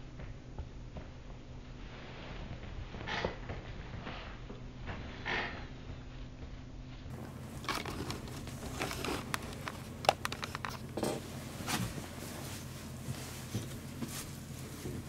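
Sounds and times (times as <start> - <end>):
rustling of fur and bedding: 7.1 - 15.0.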